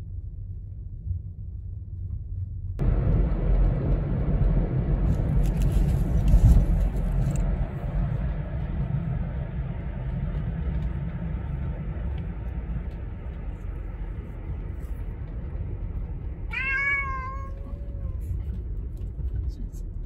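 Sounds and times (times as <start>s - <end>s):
car cabin rumble: 0.1s - 20.0s
cat meowing: 16.5s - 18.2s.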